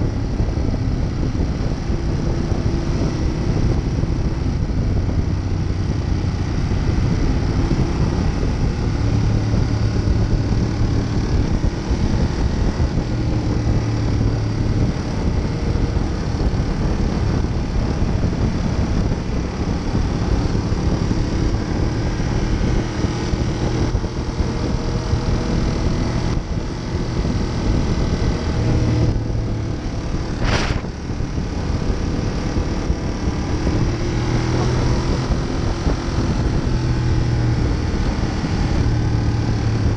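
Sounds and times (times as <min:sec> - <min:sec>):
motorcycle engine running: 0:00.0 - 0:39.9
wind rushing on microphone: 0:00.0 - 0:39.9
brief whoosh: 0:30.3 - 0:31.1.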